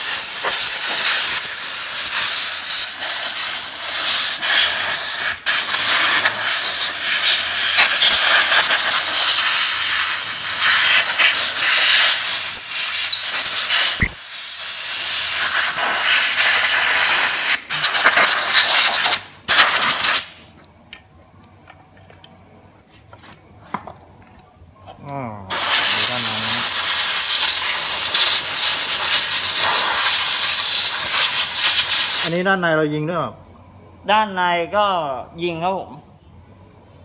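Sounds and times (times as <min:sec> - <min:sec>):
compressed air blow gun hissing: 0:00.0 - 0:20.4, 0:25.5 - 0:32.4.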